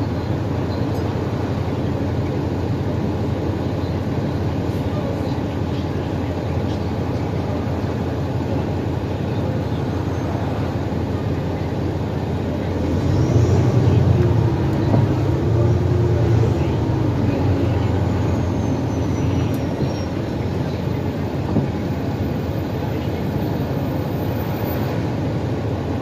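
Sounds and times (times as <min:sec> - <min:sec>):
bus engine running: 0:00.0 - 0:26.0.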